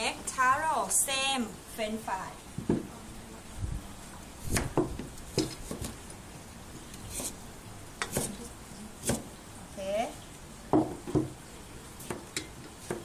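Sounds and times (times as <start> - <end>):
knife knocking on wooden board: 10.7 - 11.4.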